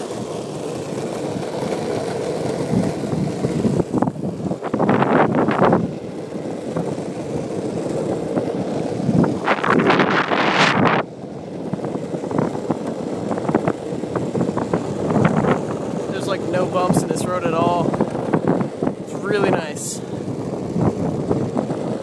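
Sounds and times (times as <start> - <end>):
longboard wheels rolling on asphalt: 0.0 - 22.0
wind on microphone: 2.5 - 22.0.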